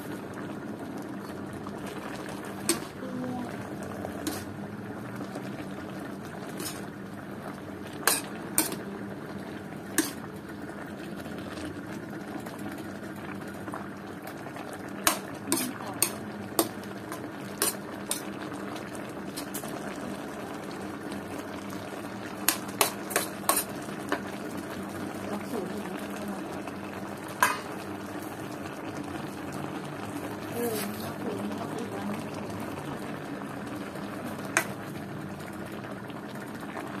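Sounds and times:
broth bubbling: 0:00.0 - 0:37.0.

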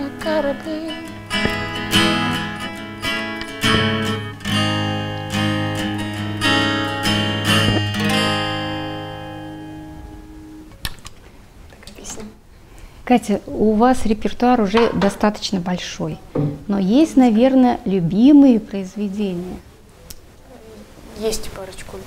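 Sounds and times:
acoustic guitar strumming chords: 0:00.0 - 0:10.8.

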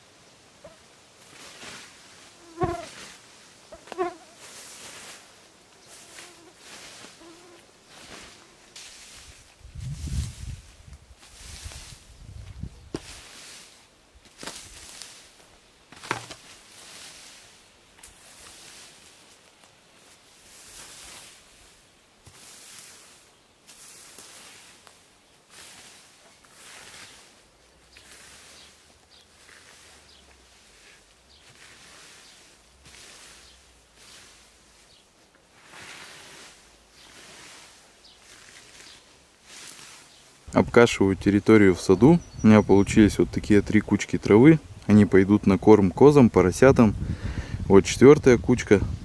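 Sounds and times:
scythe swishing through grass: 0:00.7 - 0:12.3, 0:12.9 - 0:40.4
fly buzzing: 0:02.2 - 0:05.0, 0:05.8 - 0:08.8.

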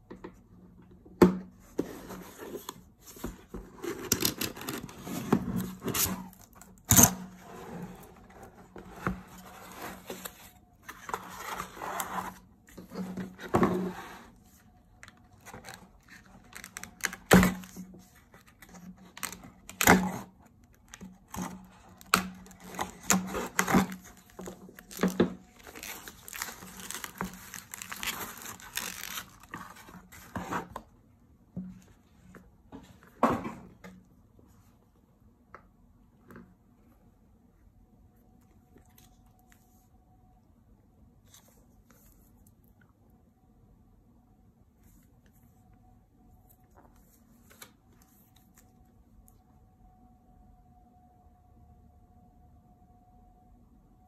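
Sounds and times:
cardboard tearing: 0:21.3 - 0:30.0
plastic wrap crinkling: 0:22.0 - 0:30.1.

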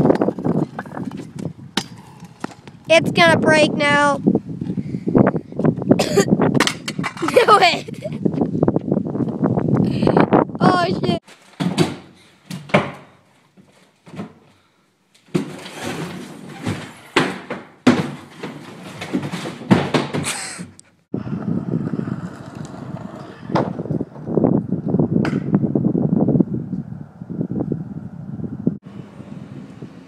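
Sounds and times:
wind rumble on microphone: 0:00.0 - 0:11.2, 0:21.1 - 0:30.0
scooter crashing onto ramp: 0:11.5 - 0:13.1, 0:15.3 - 0:20.5, 0:23.5 - 0:24.3
scooter wheels rolling on plywood: 0:15.2 - 0:20.5, 0:21.2 - 0:25.4.

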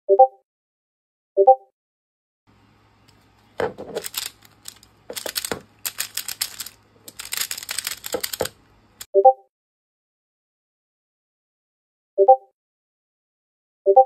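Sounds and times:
plastic puzzle clicking: 0:03.5 - 0:08.6.

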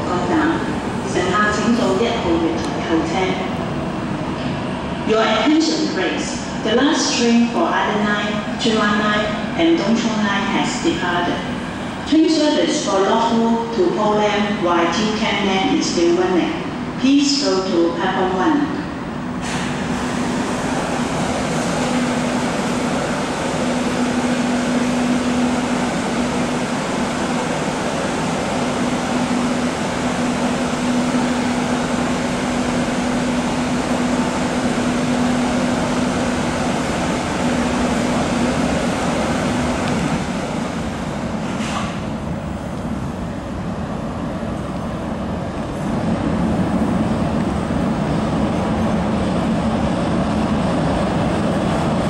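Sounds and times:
metro platform rumble: 0:00.0 - 0:52.0.

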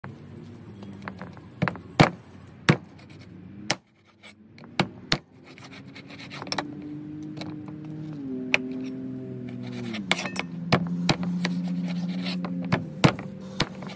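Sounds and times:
cleaver chopping on cutting board: 0:09.8 - 0:13.9.

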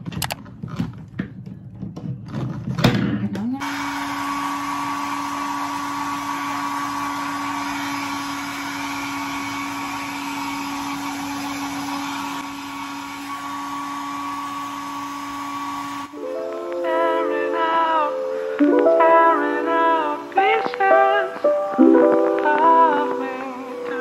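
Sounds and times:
hair dryer running: 0:03.6 - 0:21.1.

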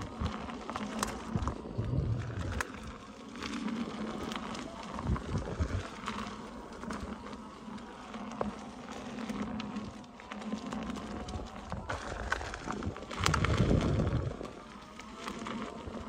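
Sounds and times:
wind buffeting microphone: 0:00.0 - 0:02.9, 0:04.8 - 0:06.3, 0:11.2 - 0:14.6
electric wheel motor hum: 0:00.0 - 0:16.0
tyre crackling over grit: 0:00.0 - 0:16.0.

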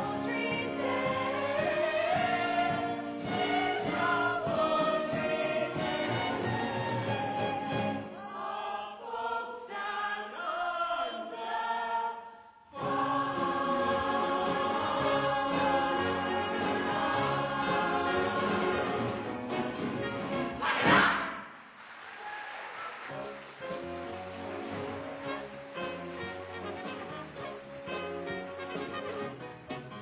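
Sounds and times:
instrumental accompaniment: 0:00.0 - 0:08.2, 0:23.1 - 0:30.0.

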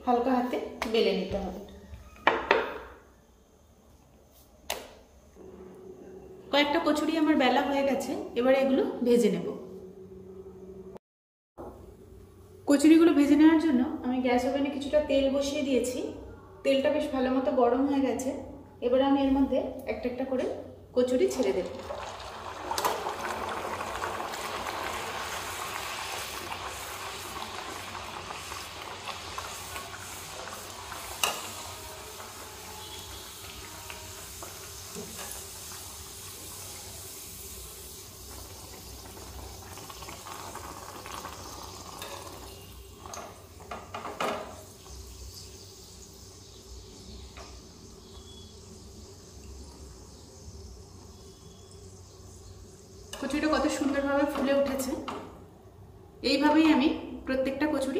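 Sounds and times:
food deep-frying in hot oil: 0:21.0 - 0:55.3.

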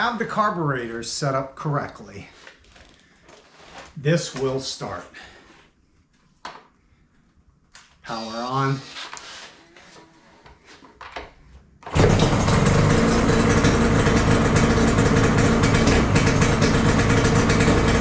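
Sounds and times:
motorcycle engine idling: 0:12.0 - 0:18.0.

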